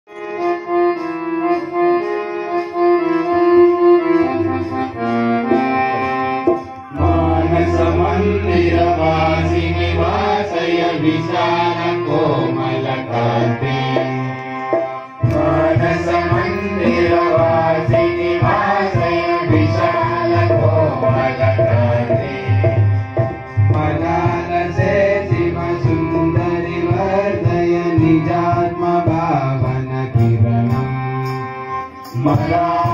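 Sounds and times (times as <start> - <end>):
harmonium: 0.1 - 32.9
tabla: 4.0 - 32.9
group of voices singing: 6.9 - 30.5.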